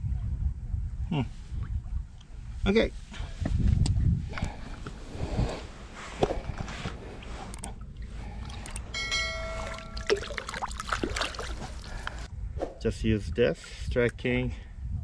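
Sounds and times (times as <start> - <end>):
water sloshing and splashing: 4.3 - 12.3.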